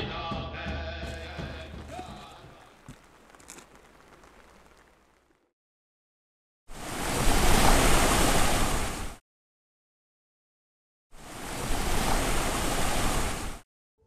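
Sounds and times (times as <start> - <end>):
music: 0.0 - 2.2
rushing water: 1.7 - 5.4, 6.8 - 9.2, 11.2 - 13.6.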